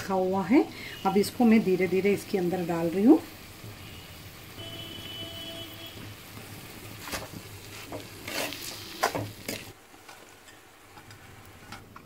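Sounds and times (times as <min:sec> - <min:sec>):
food frying in a pan: 0:00.0 - 0:12.0
steel spoon scraping a pan: 0:07.0 - 0:11.9.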